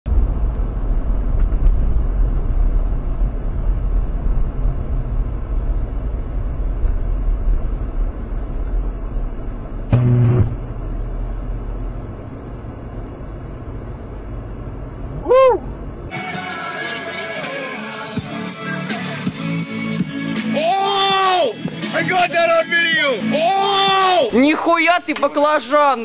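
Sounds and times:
engine and road rumble: 0:00.0 - 0:25.9
short flat tone: 0:09.9 - 0:11.6.

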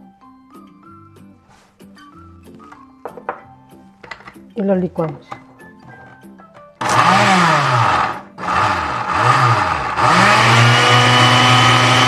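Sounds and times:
blender motor pureeing: 0:06.8 - 0:12.0.

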